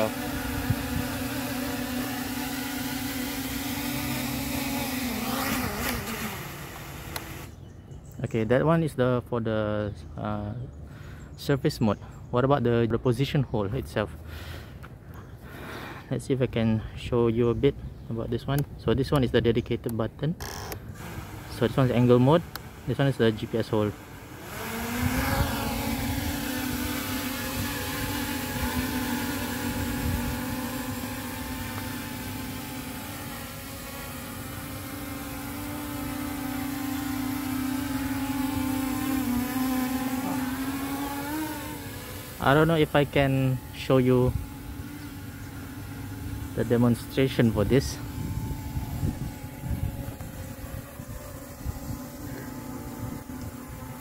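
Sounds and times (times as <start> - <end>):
quadcopter propellers buzzing: 0.0 - 12.8, 20.3 - 54.0
low hum: 20.4 - 54.0.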